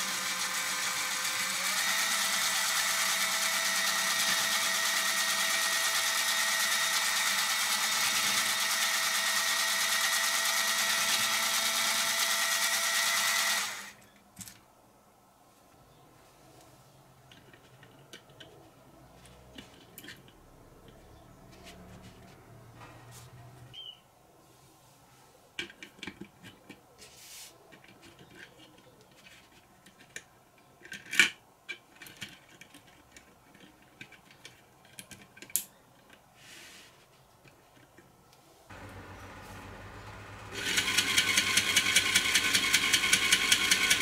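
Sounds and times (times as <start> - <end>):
plastic parts clicking together: 17.2 - 18.8, 25.6 - 26.8, 27.7 - 36.3.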